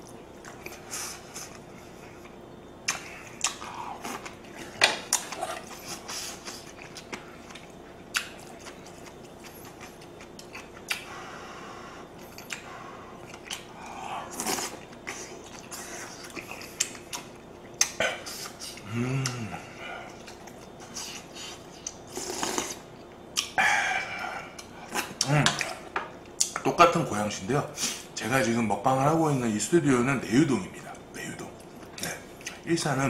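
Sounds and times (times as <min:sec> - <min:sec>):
faint steady hum: 0:00.0 - 0:33.0
person chewing and slurping: 0:12.2 - 0:25.9.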